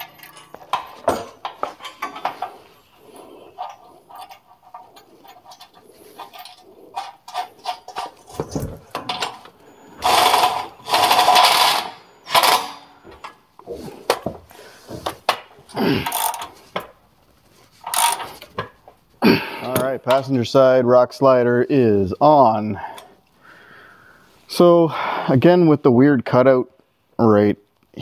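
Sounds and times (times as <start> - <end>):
metal bolts clinking: 0.0 - 13.4, 15.2 - 17.0, 17.8 - 18.8.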